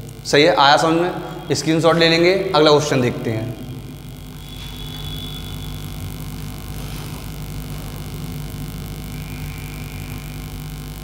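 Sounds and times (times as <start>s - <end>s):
electrical hum: 0.0s - 11.0s
duster wiping whiteboard: 6.7s - 8.0s.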